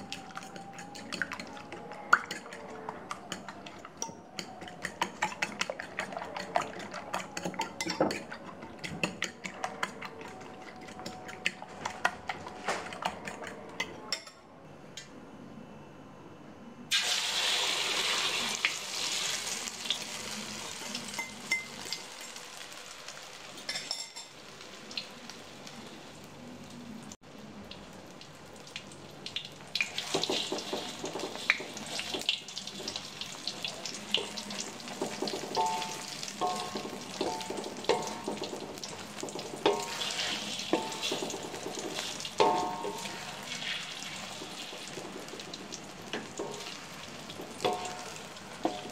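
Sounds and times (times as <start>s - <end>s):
egg sizzling in hot oil: 16.9s - 25.9s, 27.7s - 48.9s
wooden spatula scraping wok: 34.2s - 48.9s.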